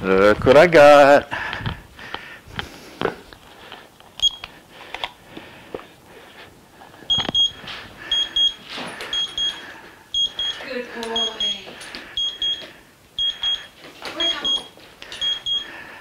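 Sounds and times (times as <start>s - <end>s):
timer beeping: 7.1s - 15.8s.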